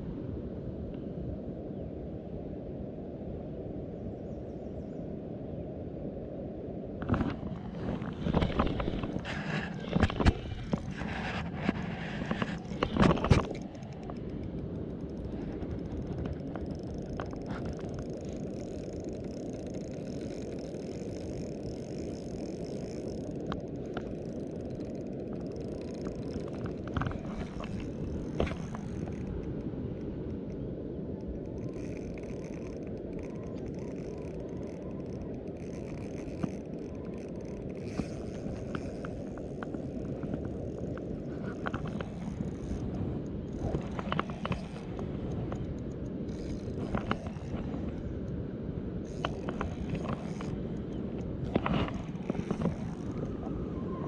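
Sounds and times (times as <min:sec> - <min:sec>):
fishing reel clicking: 0:11.8 - 0:30.6, 0:31.2 - 0:48.4, 0:49.0 - 0:53.4.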